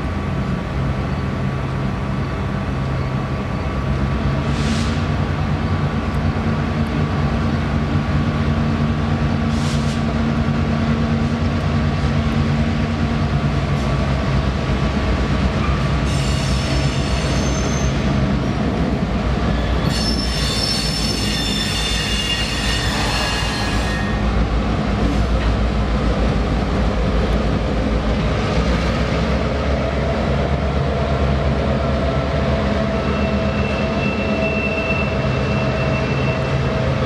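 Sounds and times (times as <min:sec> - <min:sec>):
diesel locomotive engines humming: 0:00.0 - 0:37.0
train wheels squealing: 0:15.7 - 0:18.1, 0:19.5 - 0:24.3, 0:33.0 - 0:37.0.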